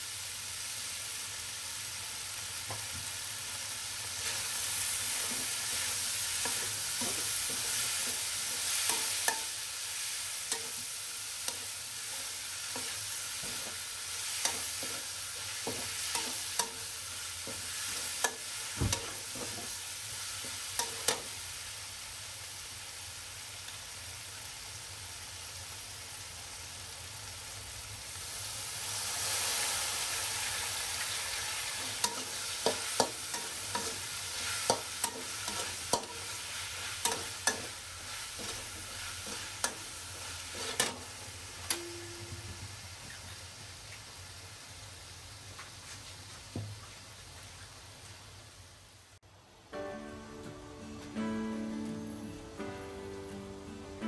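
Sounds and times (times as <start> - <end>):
food sizzling in a wok: 0.0 - 54.0
spatula scraping a wok: 4.1 - 21.4, 30.2 - 41.2.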